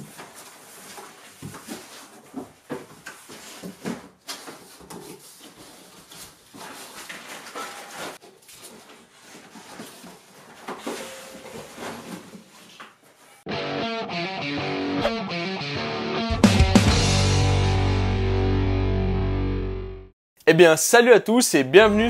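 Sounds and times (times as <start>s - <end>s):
cardboard flaps rustling and scraping: 0.0s - 13.4s.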